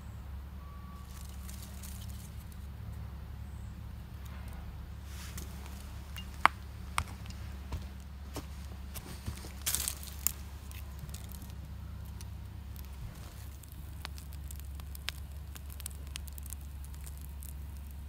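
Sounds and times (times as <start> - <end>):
campfire crackling: 3.9 - 18.0
fire popping: 8.9 - 18.0.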